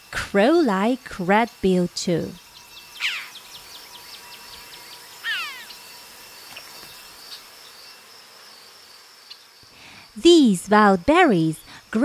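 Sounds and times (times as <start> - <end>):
insects chirring: 0.4 - 12.0
bird descending call: 3.0 - 3.4, 5.2 - 5.8.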